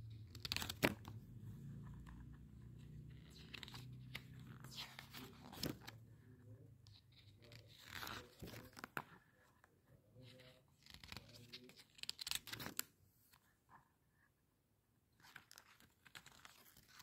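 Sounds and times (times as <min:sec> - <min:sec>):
paper pages turning: 0:00.1 - 0:01.2, 0:01.8 - 0:06.0, 0:06.9 - 0:13.5, 0:15.2 - 0:17.0.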